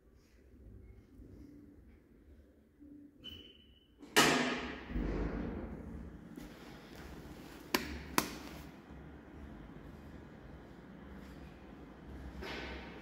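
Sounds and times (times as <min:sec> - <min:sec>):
low steady hum: 0:04.9 - 0:13.0.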